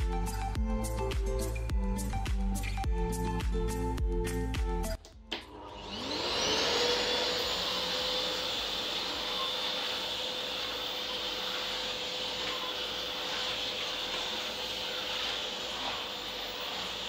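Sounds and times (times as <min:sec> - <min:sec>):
vacuum cleaner motor whine: 0:05.3 - 0:17.0
floor brush on tiled floor: 0:06.5 - 0:17.0.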